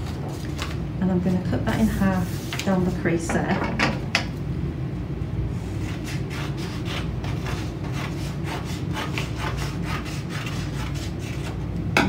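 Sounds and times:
paper rustling: 0.0s - 0.8s.

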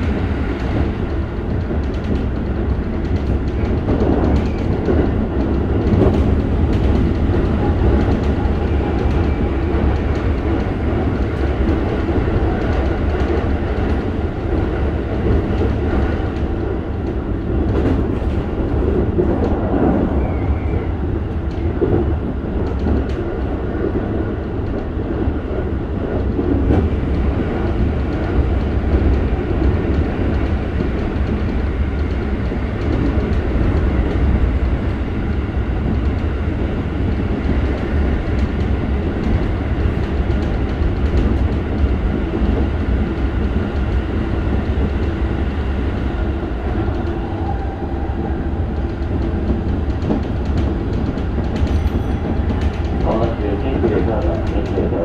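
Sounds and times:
train wheels rumbling on rail: 0.0s - 55.0s
faint track clicks: 45.9s - 55.0s.

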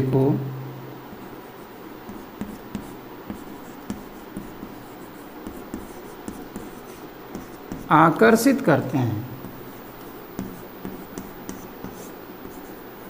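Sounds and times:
chalk scratching on chalkboard: 1.2s - 8.0s, 9.4s - 13.0s
chalk tapping on board: 2.0s - 8.0s, 9.4s - 12.9s.

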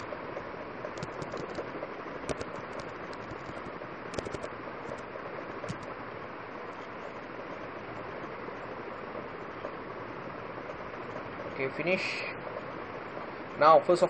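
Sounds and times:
keyboard keys clicking: 1.0s - 1.6s, 2.3s - 5.0s, 5.7s - 5.9s.

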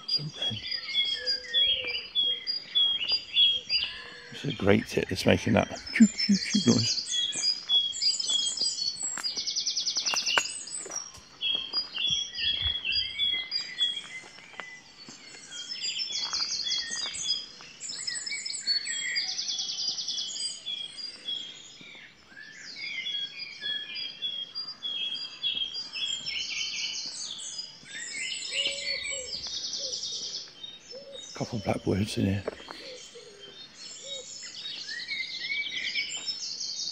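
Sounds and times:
great tit calling: 0.0s - 8.6s
wren trilling song: 0.0s - 36.9s.

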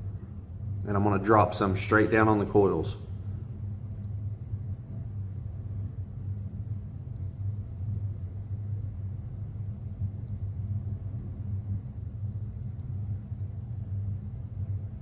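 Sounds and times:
low background rumble: 0.0s - 15.0s
faint small ticks: 7.0s - 7.8s, 11.8s - 14.8s.

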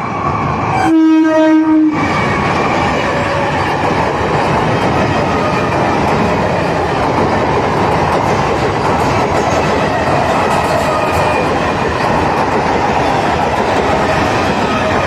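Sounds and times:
train coaches passing: 0.0s - 15.0s
train horn blast: 0.8s - 2.0s.

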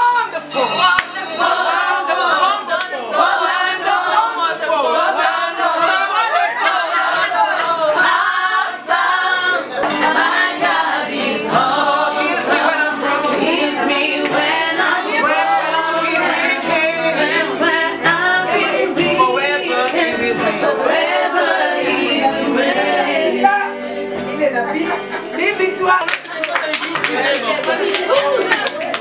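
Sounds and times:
women singing together: 0.7s - 24.5s, 26.7s - 29.0s.

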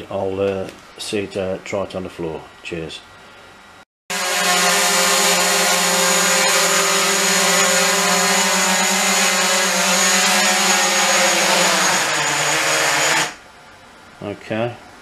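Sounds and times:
drone propellers buzzing: 4.1s - 13.4s.

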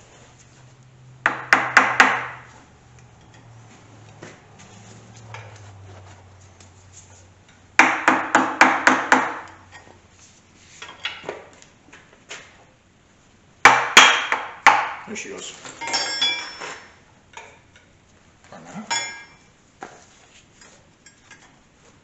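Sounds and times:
mallet striking steel bar: 13.7s - 15.0s.

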